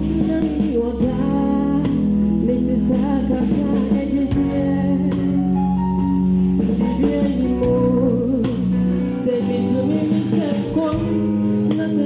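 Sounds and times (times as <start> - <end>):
instrumental backing music: 0.0 - 12.0.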